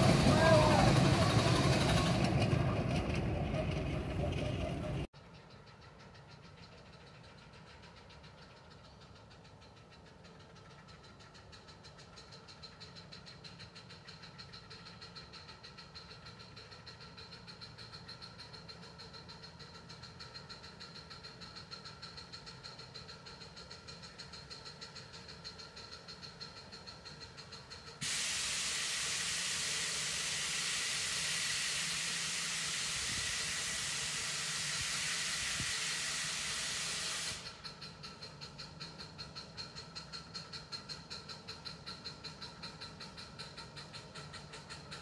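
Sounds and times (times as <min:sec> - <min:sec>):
loud steam hiss: 0:00.0 - 0:02.5, 0:28.0 - 0:38.5
faint steam locomotive pulsing: 0:00.0 - 0:45.0.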